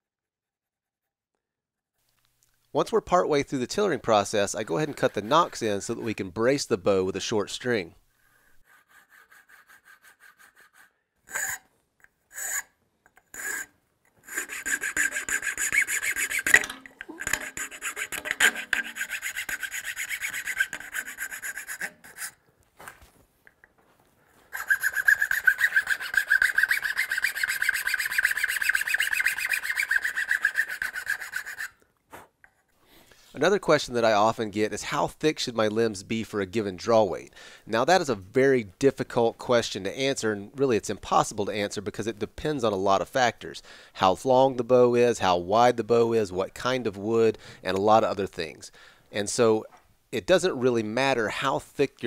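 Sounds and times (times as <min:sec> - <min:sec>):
file rasping on wood: 0:04.5 - 0:06.2, 0:08.6 - 0:11.6, 0:13.3 - 0:22.4, 0:24.5 - 0:31.8.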